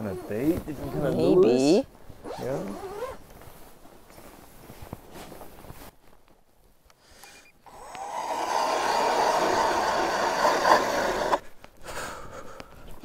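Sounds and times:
power ice auger motor: 7.7 - 11.4.

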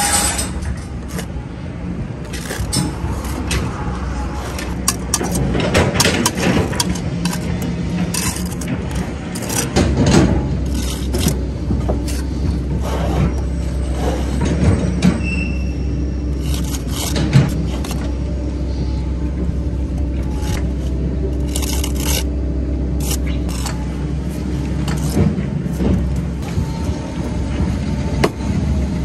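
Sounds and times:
trowel scraping mortar: 0.0 - 1.4, 2.2 - 14.6, 15.2 - 19.1, 20.0 - 22.4, 23.0 - 27.0
machinery engine rumble: 0.0 - 29.0.

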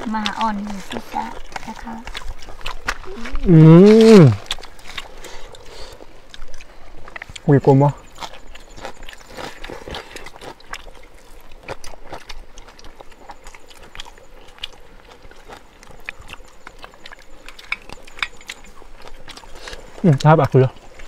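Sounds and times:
people chewing and lip-smacking: 0.0 - 21.0.

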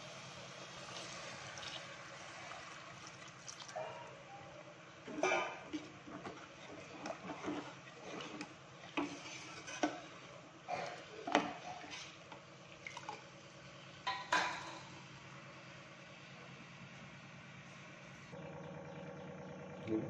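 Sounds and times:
ladle scraping and clinking pot: 5.1 - 10.1.

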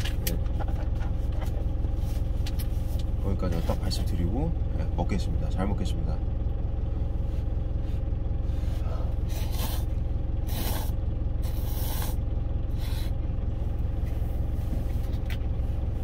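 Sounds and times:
truck engine idling: 0.0 - 16.0
person slurping noodles: 9.3 - 9.9, 10.5 - 12.2.

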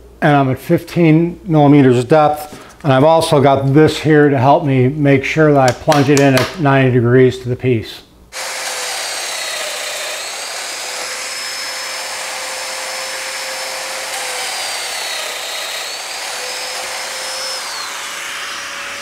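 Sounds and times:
dust extractor drawing through hose: 8.4 - 19.0
joiner motor whine: 8.4 - 19.0.

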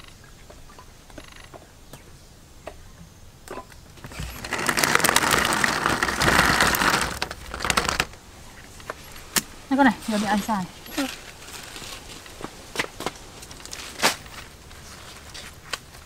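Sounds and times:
eggs clattering into wicker basket: 4.0 - 8.2.

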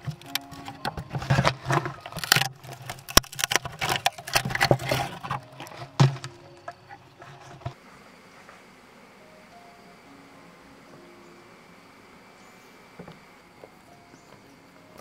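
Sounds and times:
rotten wood breaking off: 0.0 - 7.8
pole scraping inside hollow trunk: 0.0 - 8.6.

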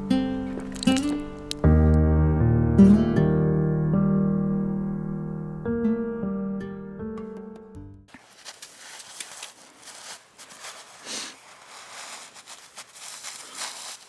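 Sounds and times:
piano music: 0.0 - 8.1
light crackles: 0.2 - 2.0, 8.1 - 14.0.

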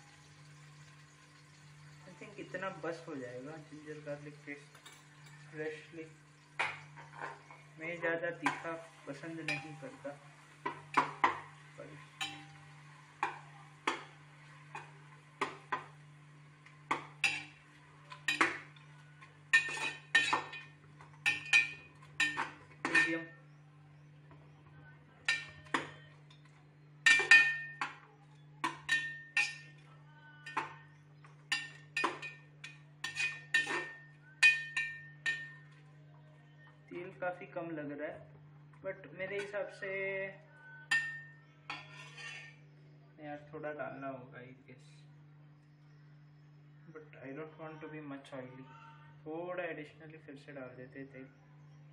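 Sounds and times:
metal spoon scraping pot: 19.5 - 23.4, 28.6 - 29.8, 31.5 - 35.6, 40.9 - 42.6.

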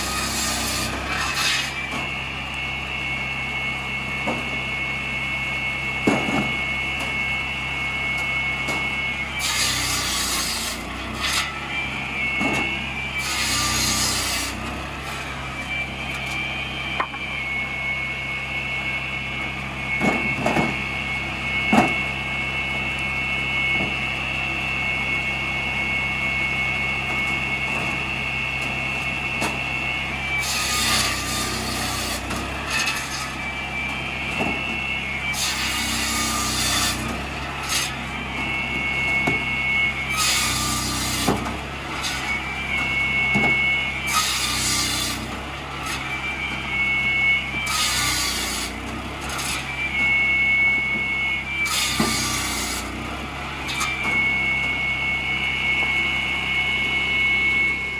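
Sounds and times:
rasping sawing through logs: 0.0 - 1.9, 9.3 - 15.8, 30.3 - 33.9, 34.5 - 39.0, 40.1 - 46.9, 47.6 - 50.2, 51.6 - 54.3
saw blade whining: 0.0 - 57.9.

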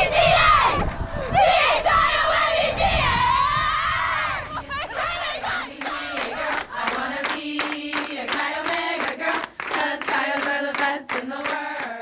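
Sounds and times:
women chanting in unison: 0.0 - 12.0
rhythmic hand clapping: 5.7 - 12.0.

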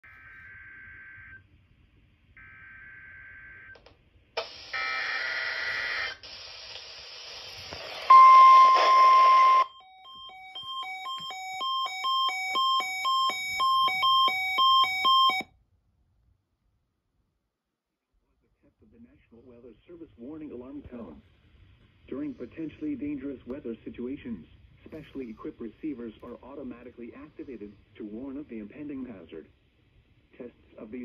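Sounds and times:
radio noise: 7.3 - 9.6, 18.6 - 29.6
steady warning alarm tone: 8.1 - 15.5.

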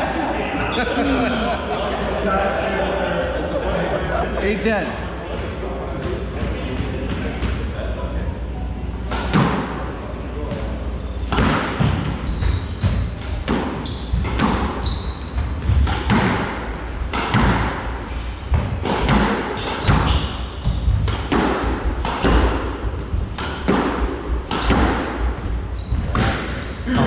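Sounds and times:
squash ball smacking racquets and walls: 9.1 - 27.0
shoe squeaks on hardwood floor: 12.2 - 16.8, 19.1 - 21.4, 25.4 - 27.0.

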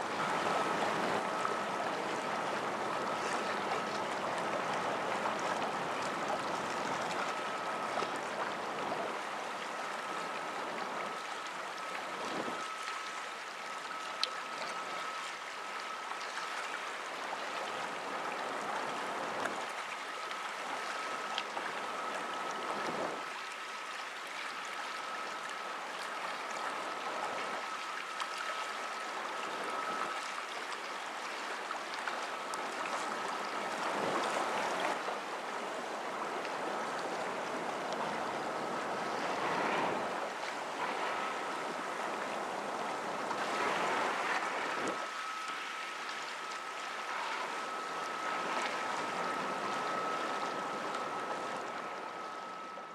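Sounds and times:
river water washing against shore: 0.0 - 52.7
high-pitched whine: 36.4 - 52.9.

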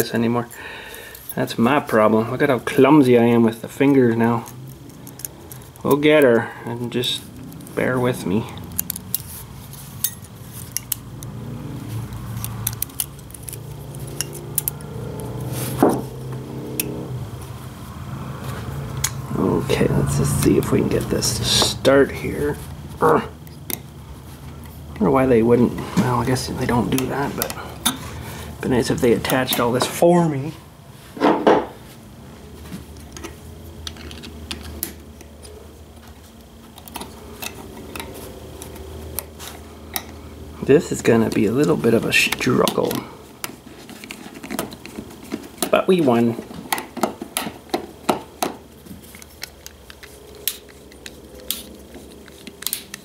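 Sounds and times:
steady low hum: 0.0 - 53.0
small metal parts clinking: 4.3 - 15.4.

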